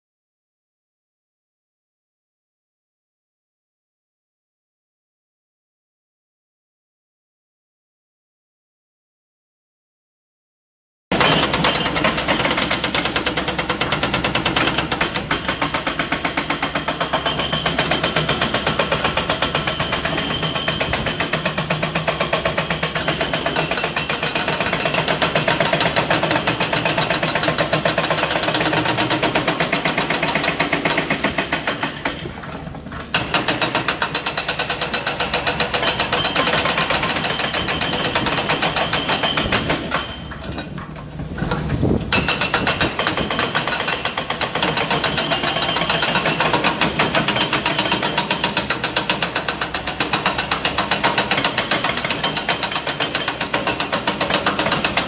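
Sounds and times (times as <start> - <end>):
hydraulic breaker hammering: 11.1 - 55.0.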